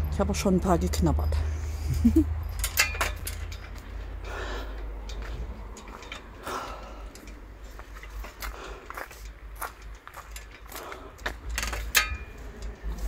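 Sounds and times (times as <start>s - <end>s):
sharp clicks and knocks: 2.5s - 13.0s
footsteps on dirt path: 7.6s - 11.9s.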